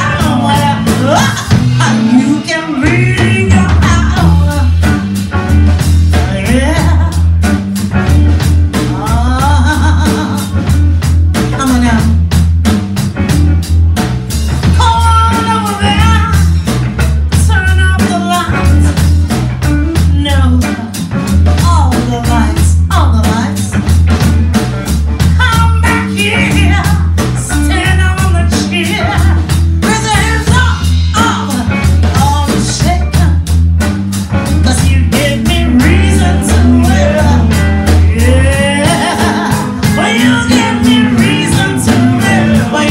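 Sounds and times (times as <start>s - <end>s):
woman singing: 0.0s - 5.2s, 6.1s - 7.2s, 8.8s - 10.8s, 11.5s - 12.3s, 14.7s - 16.6s, 17.3s - 23.8s, 25.3s - 33.5s, 34.4s - 42.9s
drum kit beat: 0.0s - 42.9s
electric bass: 0.0s - 42.9s
electric guitar: 0.0s - 42.9s.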